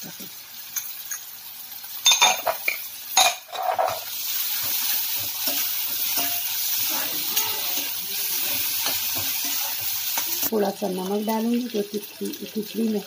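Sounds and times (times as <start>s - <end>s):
vegetables sizzling in oil: 0.0s - 13.0s
metal ladle scraping a pan: 2.3s - 10.4s.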